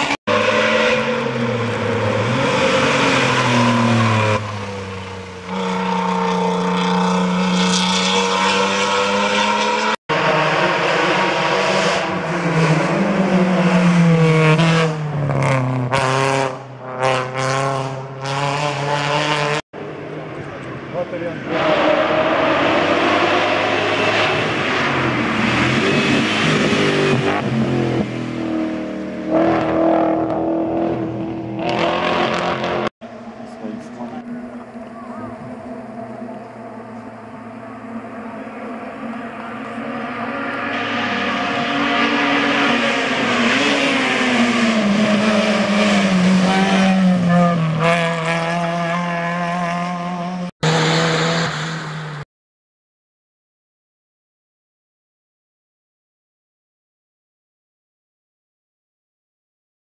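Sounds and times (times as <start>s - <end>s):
race car engine revving: 0.0s - 52.2s.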